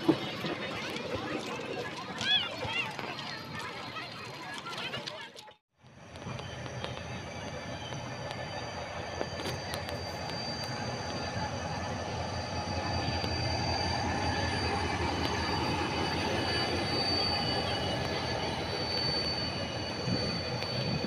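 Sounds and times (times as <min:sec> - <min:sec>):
locomotive engine rumble: 0:00.0 - 0:21.0
high-pitched whine: 0:05.9 - 0:21.0.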